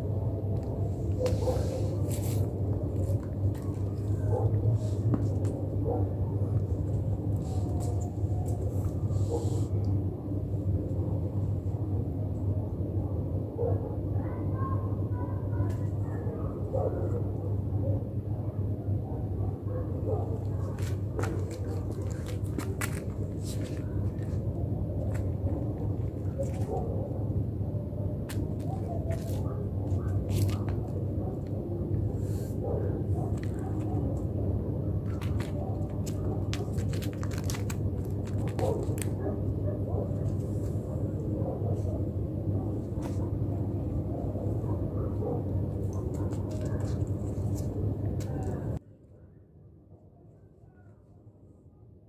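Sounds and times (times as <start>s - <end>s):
low background hum: 0.0s - 52.0s
paws tapping on stone floor: 0.4s - 9.0s, 20.0s - 27.2s, 28.2s - 32.0s, 32.7s - 42.0s, 44.7s - 48.8s.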